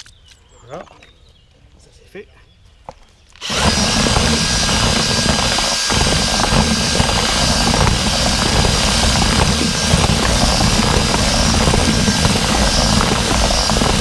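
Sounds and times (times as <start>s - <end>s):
electric drill whisking groundbait: 3.4s - 14.0s.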